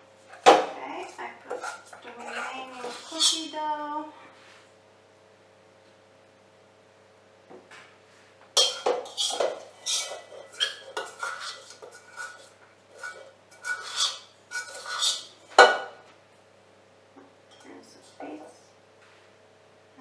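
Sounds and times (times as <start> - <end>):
utensil scraping metal bowl: 1.0 - 3.6, 8.6 - 15.9.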